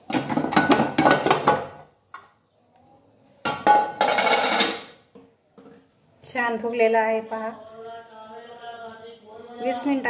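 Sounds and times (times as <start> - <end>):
metal lid scraping and clattering: 3.6 - 5.0.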